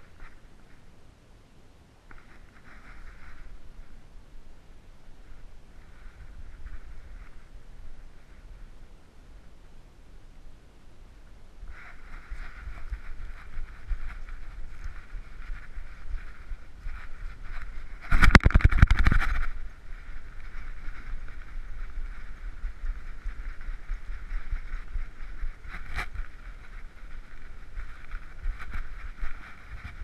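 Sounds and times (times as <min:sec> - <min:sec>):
camera mount rumbling and rubbing: 0:02.1 - 0:03.6, 0:11.7 - 0:30.0.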